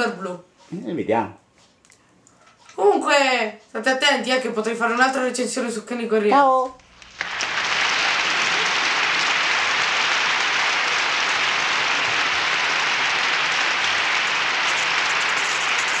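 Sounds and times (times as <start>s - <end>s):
crowd applause: 7.0s - 16.0s.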